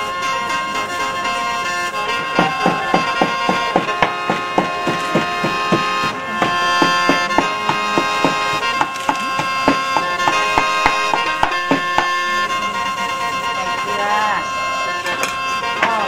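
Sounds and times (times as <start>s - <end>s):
background music with reedy tones: 0.0s - 16.0s
cleaver chopping on wooden block: 2.4s - 12.2s.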